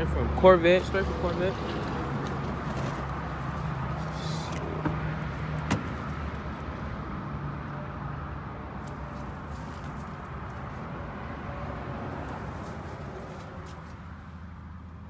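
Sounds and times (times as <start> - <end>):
car door latch click: 5.6 - 6.0.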